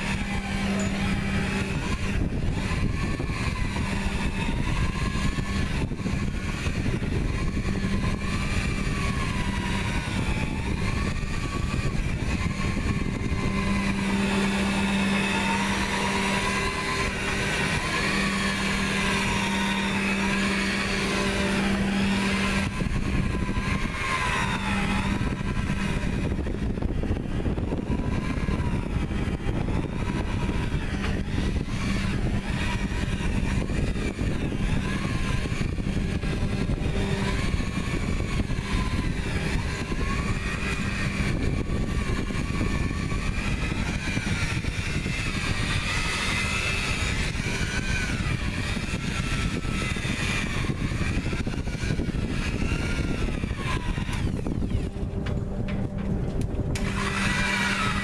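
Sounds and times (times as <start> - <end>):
electric buffer whining: 0.0 - 58.0.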